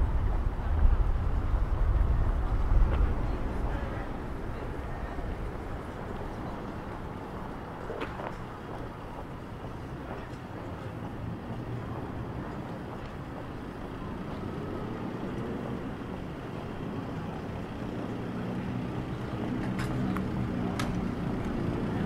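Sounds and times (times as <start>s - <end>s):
street noise: 0.0s - 22.0s
vehicle engines rumbling: 0.0s - 22.0s.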